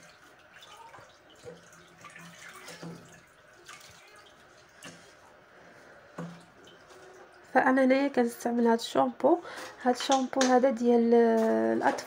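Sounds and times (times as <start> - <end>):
water splashing in basin: 0.0 - 5.2.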